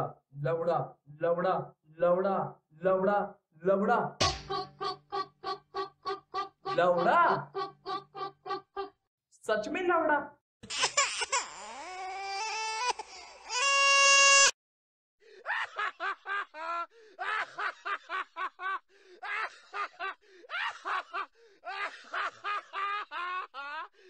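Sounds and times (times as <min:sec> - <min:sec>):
man laughing hard: 0:04.6 - 0:08.9, 0:15.4 - 0:24.0.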